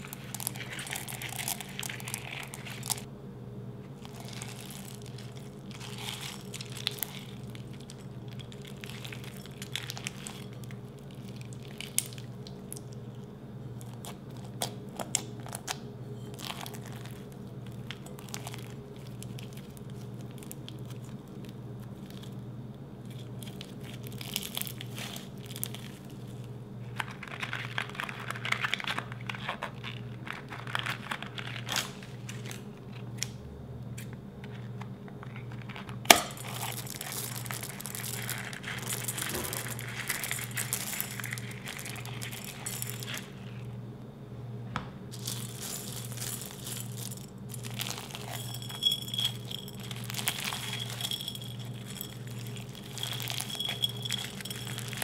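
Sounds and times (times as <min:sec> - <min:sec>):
bead slime crackling: 0:00.0 - 0:03.1, 0:04.0 - 0:12.9, 0:36.4 - 0:43.5, 0:45.2 - 0:55.0.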